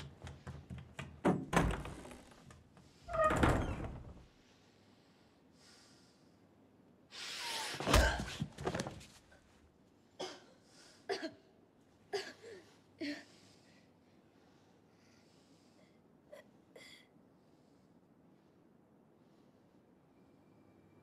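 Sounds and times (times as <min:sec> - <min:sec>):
door thudding shut: 0:01.2 - 0:02.1.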